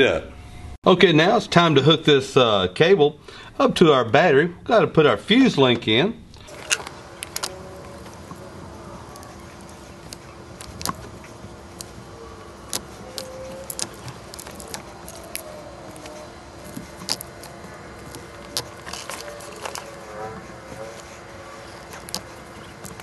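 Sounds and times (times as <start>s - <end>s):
faint steady hum: 0.0s - 23.0s
wires being handled: 6.4s - 23.0s.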